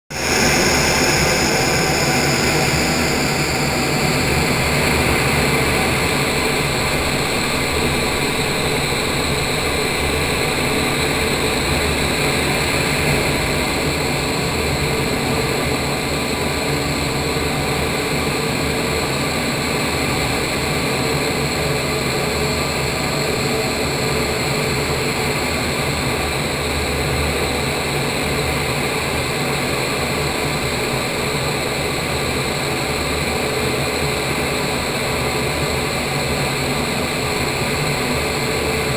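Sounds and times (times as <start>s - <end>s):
wind tunnel air rushing: 0.1s - 23.1s
faint steady whine: 0.1s - 38.9s.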